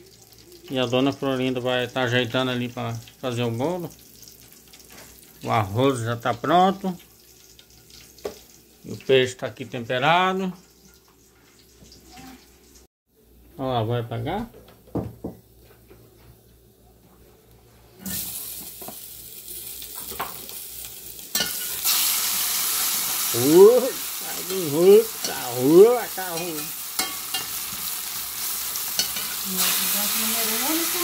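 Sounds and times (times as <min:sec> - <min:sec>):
fish sizzling in hot oil: 0:00.0 - 0:09.4, 0:18.0 - 0:31.0.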